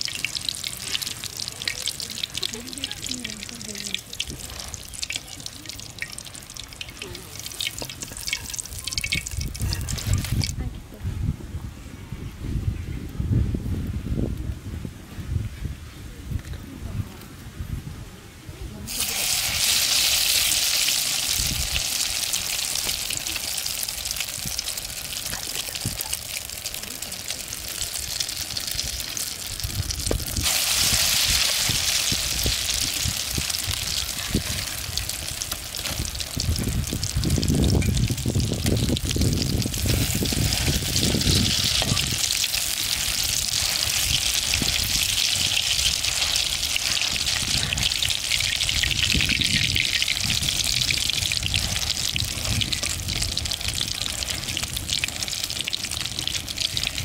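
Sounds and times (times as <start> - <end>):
food sizzling in hot oil: 0.0 - 10.6, 18.9 - 57.0.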